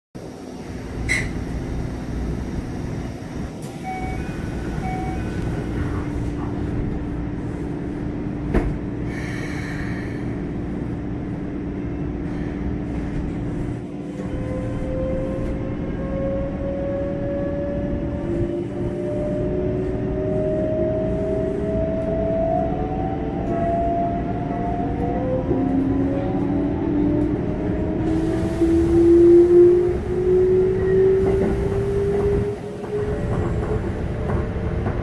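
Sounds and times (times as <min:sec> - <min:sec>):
rising train motor whine: 0:00.2 - 0:35.0
train inverter tone: 0:00.3 - 0:07.1.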